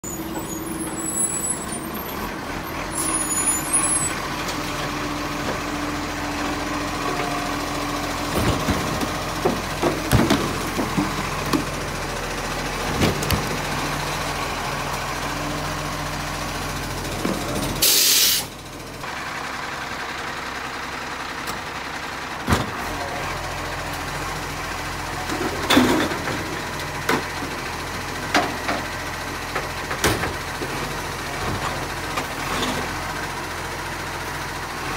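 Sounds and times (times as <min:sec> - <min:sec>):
garbage truck idling: 0:00.0 - 0:34.9
clanks and knocks from bin: 0:08.3 - 0:11.7, 0:25.3 - 0:27.3, 0:29.6 - 0:30.8
air release hiss: 0:17.8 - 0:18.5.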